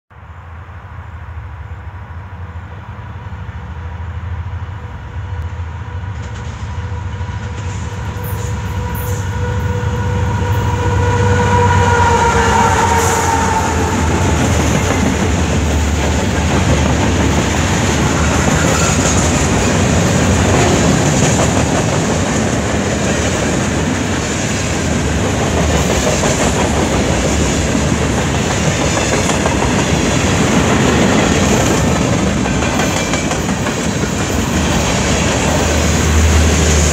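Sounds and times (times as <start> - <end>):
train wheels clattering over joints: 25.2 - 36.6.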